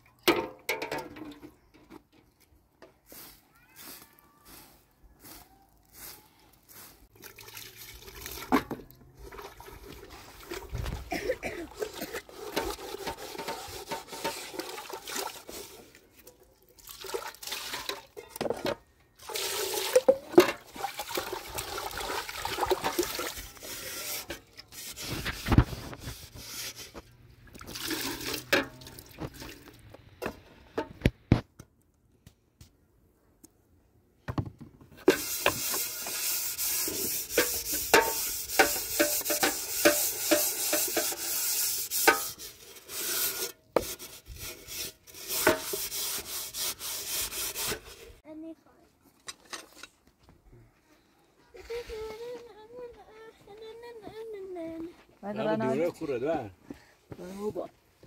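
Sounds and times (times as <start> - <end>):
metal vessels knocking: 0.3 - 1.4, 37.3 - 41.2
water pouring into metal basin: 7.2 - 10.7, 16.7 - 18.3, 19.2 - 24.2, 27.5 - 29.7.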